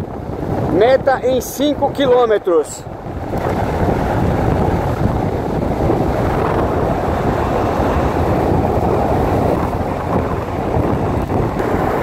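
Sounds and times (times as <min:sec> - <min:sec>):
car road noise: 0:00.0 - 0:12.0
wind rush on microphone: 0:00.0 - 0:12.0.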